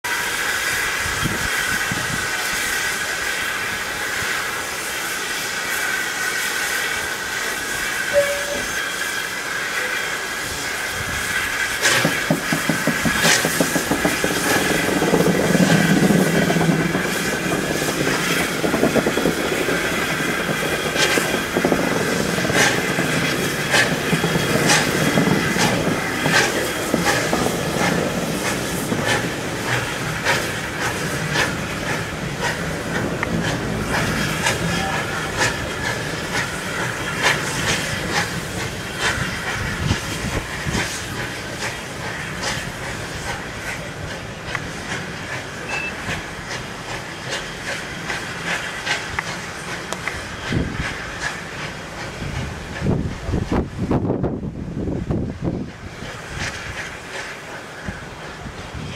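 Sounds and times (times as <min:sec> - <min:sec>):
steam hissing: 0:00.1 - 0:58.9
steam locomotive exhaust beats: 0:00.1 - 0:58.9
wheels clicking over rail joints: 0:11.8 - 0:53.7.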